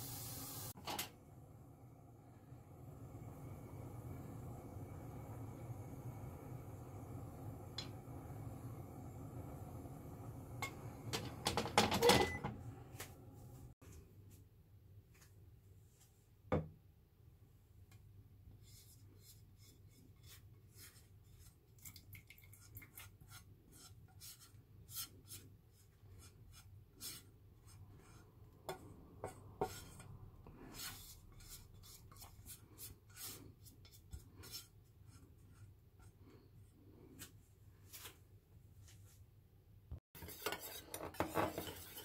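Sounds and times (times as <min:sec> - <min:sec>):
utensil scraping cookware: 0:10.6 - 0:12.5, 0:26.2 - 0:34.8, 0:40.2 - 0:42.0.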